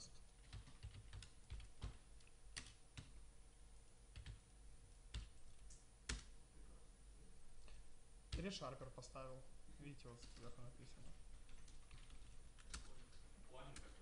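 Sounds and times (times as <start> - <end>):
typing on computer keyboard: 0.3 - 3.2, 4.1 - 4.5, 5.1 - 6.3, 10.2 - 10.6, 11.3 - 14.0.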